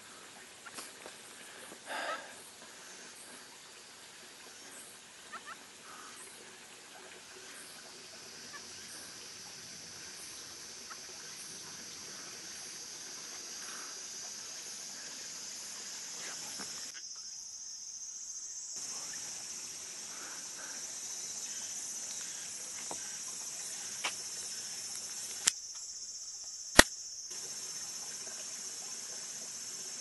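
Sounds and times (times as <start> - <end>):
insects droning: 0.0 - 30.0
sharp clicks: 26.7 - 27.0.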